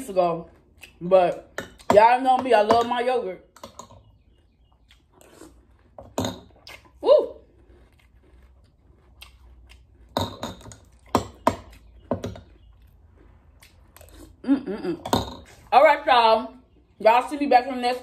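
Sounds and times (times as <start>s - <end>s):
person chewing: 0.1s - 1.9s, 3.5s - 15.7s.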